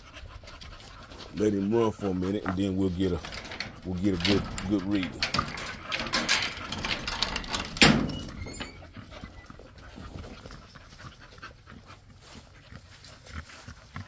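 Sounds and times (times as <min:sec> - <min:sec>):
dog panting: 0:00.0 - 0:05.1, 0:08.8 - 0:14.0.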